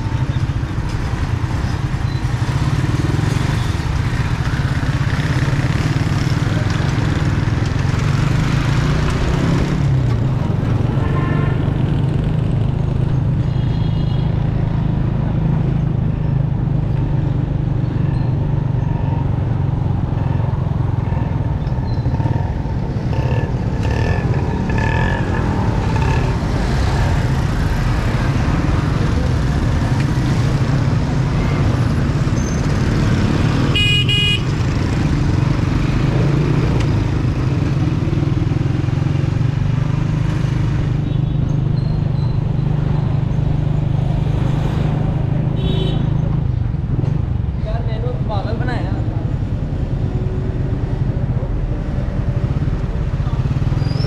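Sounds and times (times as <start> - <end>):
street traffic: 0.0 - 54.0
traffic horns honking: 10.8 - 12.0, 13.4 - 14.4, 33.5 - 34.9, 45.4 - 46.4.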